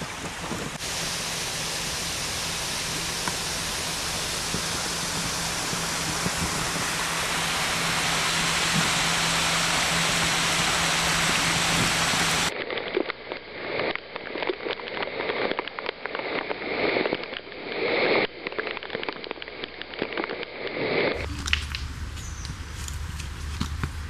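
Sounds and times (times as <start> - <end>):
steady hiss: 0.0 - 12.5
storm water rushing and dripping: 0.0 - 12.5.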